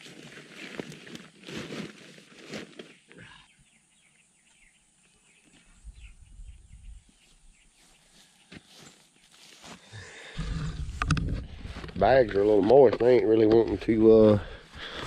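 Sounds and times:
birds chirping faintly: 2.8 - 10.8.

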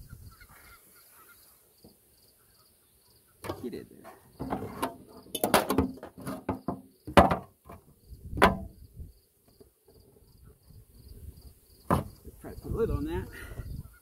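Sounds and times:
insect chirping faintly: 0.0 - 14.0
beehive parts knocking and scraping: 3.4 - 10.4, 11.8 - 12.4.

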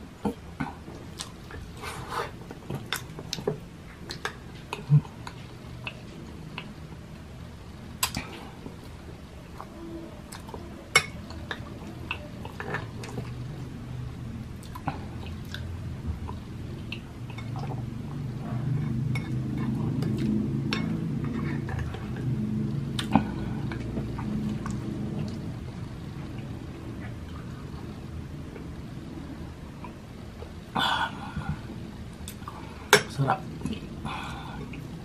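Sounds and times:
chewing porridge: 14.5 - 25.6.

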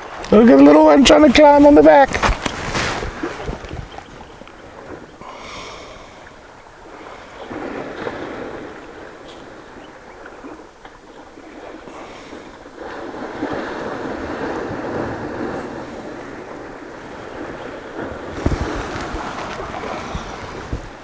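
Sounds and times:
elephants splashing through water: 5.9 - 21.0.

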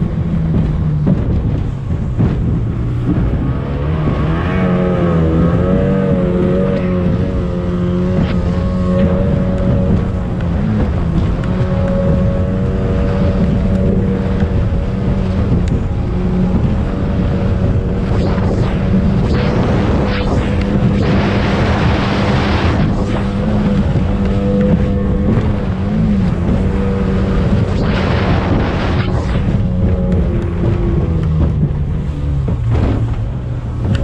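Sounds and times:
rush of water: 0.0 - 34.0
speedboat engine running: 0.0 - 34.0
wind on microphone: 0.0 - 34.0
hull knocking on water: 0.1 - 4.3.

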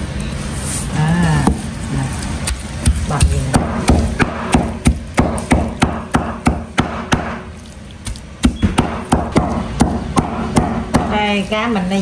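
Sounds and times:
knife chopping on cutting board: 2.5 - 11.4.

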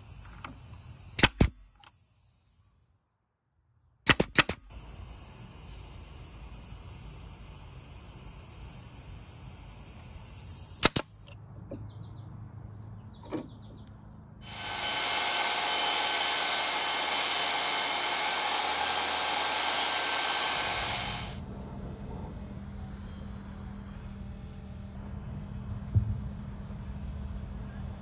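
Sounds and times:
sharp clicks: 1.2 - 2.0, 4.1 - 4.7, 10.8 - 11.4
table saw cutting plywood: 14.4 - 21.4.

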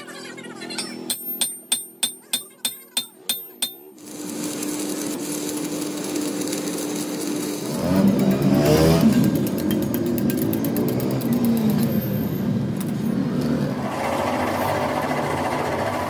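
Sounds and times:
hammer ringing on steel: 0.8 - 3.9
electric arc welding crackle: 3.7 - 11.7.

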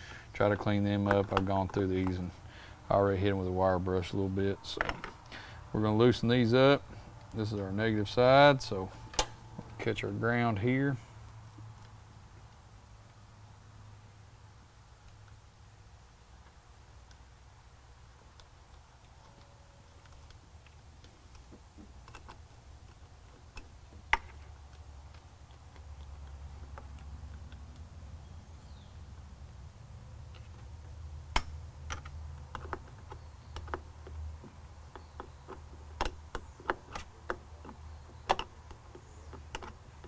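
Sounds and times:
low steady hum: 0.0 - 40.0.

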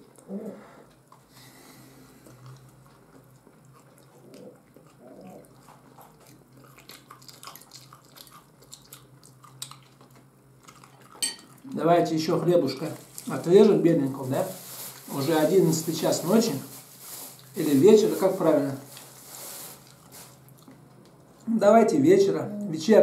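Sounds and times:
person chewing food: 1.9 - 11.7, 19.8 - 21.5.

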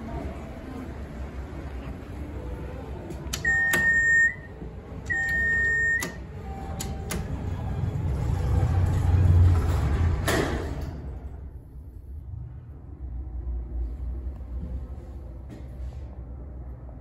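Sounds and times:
elevator machinery hum: 0.0 - 17.0
elevator buttons clicking: 3.2 - 7.5.

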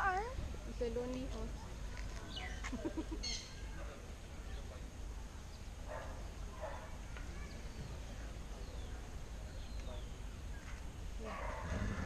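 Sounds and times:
bird chirps: 2.3 - 3.8.

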